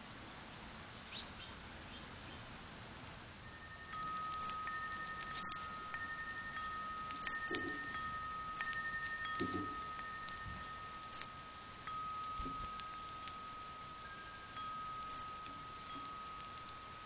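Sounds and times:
wind chime ringing: 3.4 - 17.0
faint light ticks: 3.9 - 17.0.

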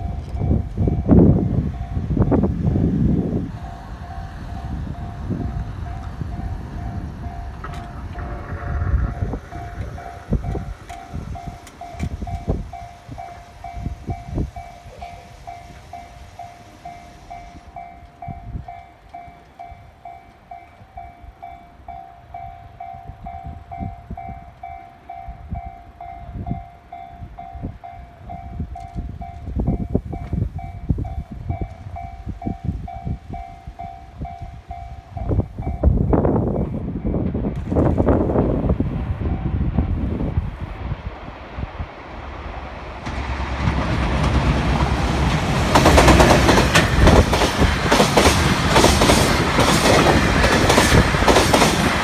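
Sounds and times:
level crossing warning bell: 0.0 - 37.2
wind buffeting microphone: 0.0 - 52.0.

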